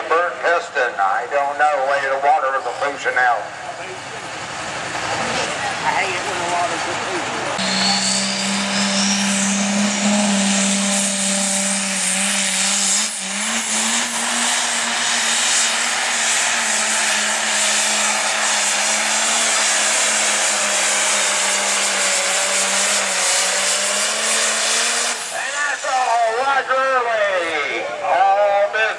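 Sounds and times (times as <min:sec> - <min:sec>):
diesel tractor engine roaring: 0:00.0 - 0:28.9
turbo whistle: 0:07.6 - 0:13.4.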